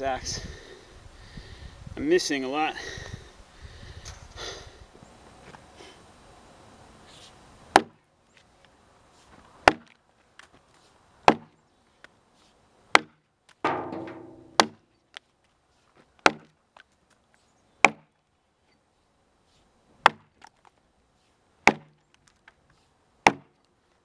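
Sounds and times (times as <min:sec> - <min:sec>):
axe chopping into log: 0:07.7 - 0:08.0, 0:09.6 - 0:10.0, 0:11.3 - 0:11.6, 0:12.9 - 0:14.9, 0:16.2 - 0:16.6, 0:17.8 - 0:18.1, 0:20.0 - 0:20.3, 0:21.6 - 0:22.0, 0:23.2 - 0:23.5.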